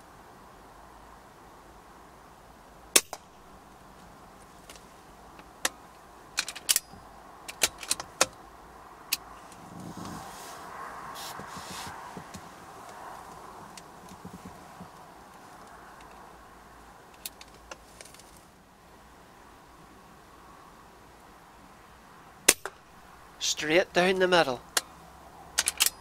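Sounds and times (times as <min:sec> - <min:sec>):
metallic clicks of rifle cocking: 0:06.4 - 0:06.9, 0:25.6 - 0:26.0
rustling: 0:09.2 - 0:16.2, 0:17.2 - 0:18.5.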